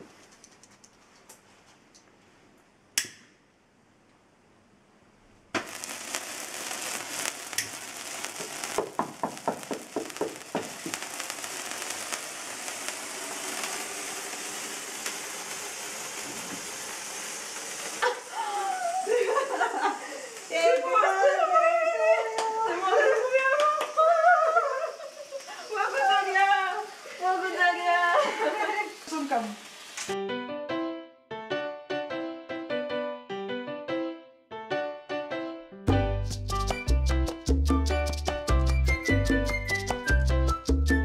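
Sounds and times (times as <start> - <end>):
sparklers hissing and crackling: 5.6 - 30.2, 36.3 - 40.8
excited voices: 18.0 - 29.5.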